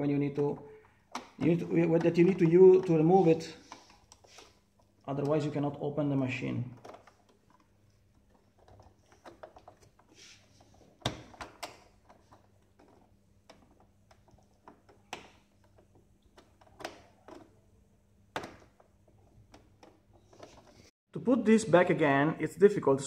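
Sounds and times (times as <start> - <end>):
plastic clicks and knocks: 6.7 - 10.1, 10.8 - 17.6, 18.3 - 20.8.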